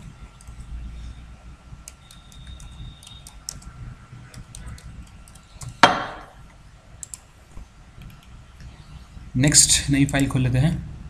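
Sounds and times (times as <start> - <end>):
loud knock: 5.8 - 6.4.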